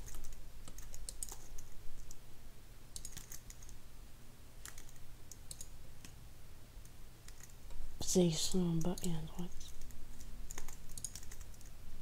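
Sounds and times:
computer keyboard keystrokes: 0.0 - 2.2, 2.9 - 3.7, 4.6 - 6.2, 7.2 - 7.6, 8.8 - 11.7
steady low hum: 0.0 - 12.0.

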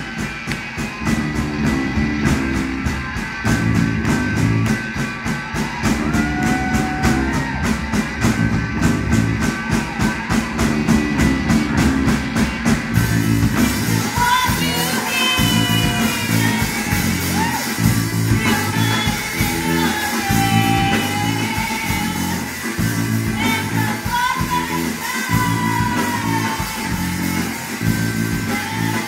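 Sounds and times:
rock band playing: 0.0 - 29.0
woman singing: 13.8 - 29.0.

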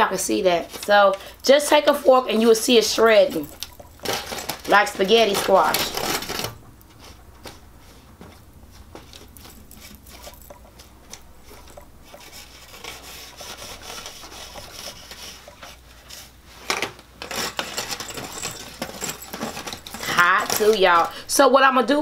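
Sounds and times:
fork scraping squash flesh: 11.4 - 16.4.

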